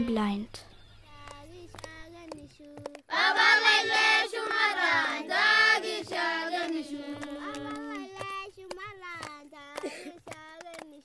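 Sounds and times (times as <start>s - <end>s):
children singing: 3.1s - 8.7s.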